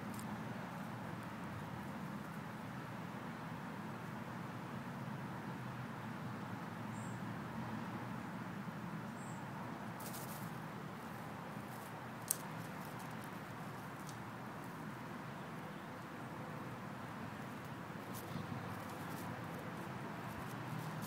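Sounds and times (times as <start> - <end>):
squirrel rustling in grass: 0.0 - 2.4, 9.9 - 21.0.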